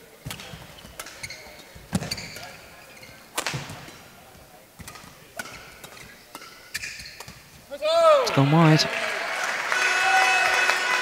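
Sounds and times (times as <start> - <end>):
racket hitting shuttlecock: 0.2 - 2.6, 3.3 - 4.1, 4.8 - 7.5
shoes squeaking on court: 0.2 - 7.7.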